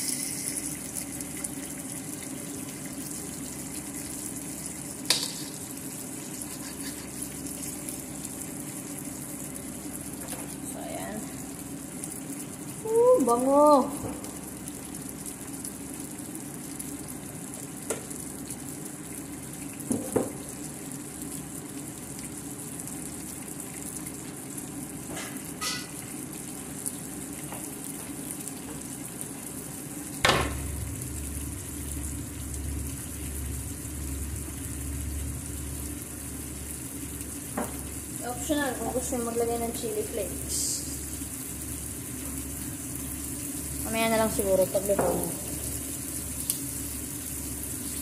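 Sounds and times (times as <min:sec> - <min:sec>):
steak sizzling in a pan: 0:00.0 - 0:10.6, 0:25.2 - 0:26.9, 0:33.0 - 0:48.0.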